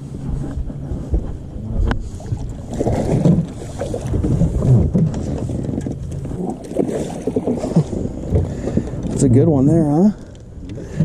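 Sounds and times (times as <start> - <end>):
steady low hum: 0.0 - 11.0
wind buffeting microphone: 0.0 - 11.0.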